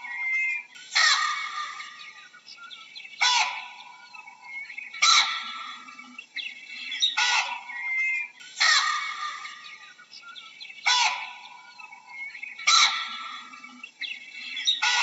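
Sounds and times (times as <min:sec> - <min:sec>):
baboons screaming barks: 0:00.0 - 0:01.9, 0:03.2 - 0:03.8, 0:05.0 - 0:05.8, 0:07.1 - 0:09.6, 0:10.8 - 0:11.5, 0:12.6 - 0:13.5, 0:14.7 - 0:15.0
small birds chirping: 0:00.0 - 0:15.0.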